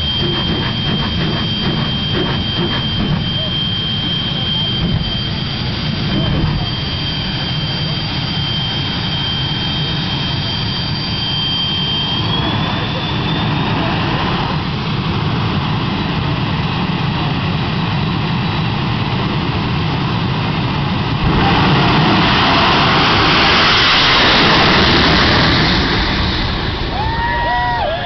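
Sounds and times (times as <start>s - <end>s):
jet dragster launching: 0.0s - 16.8s, 17.5s - 28.0s
jet engines whining: 0.0s - 28.0s.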